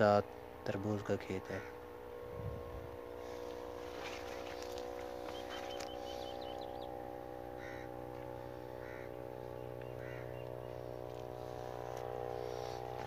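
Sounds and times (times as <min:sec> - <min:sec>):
steady low hum: 0:00.0 - 0:13.0
harsh bird calls: 0:01.3 - 0:01.9, 0:04.0 - 0:13.0.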